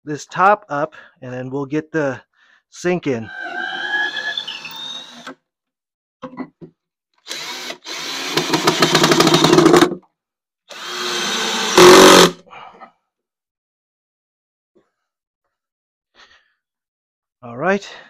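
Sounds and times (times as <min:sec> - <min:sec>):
power drill boring into wood: 0:03.3 - 0:05.4, 0:07.2 - 0:10.0, 0:10.7 - 0:12.4.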